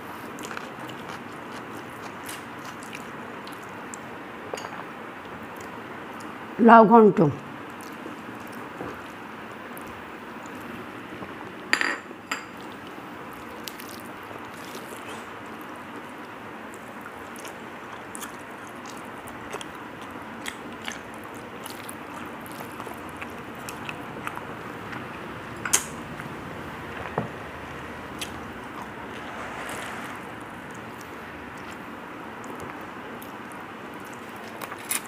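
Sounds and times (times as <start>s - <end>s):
chewing: 0.3s - 4.0s, 16.7s - 26.3s.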